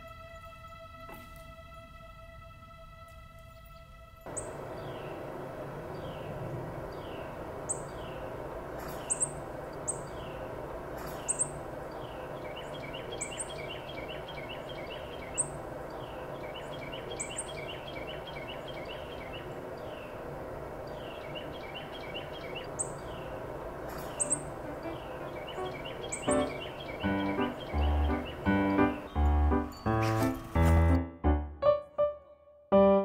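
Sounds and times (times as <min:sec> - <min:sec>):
outdoor background noise: 0:00.0 - 0:31.1
small birds chirping: 0:03.5 - 0:30.7.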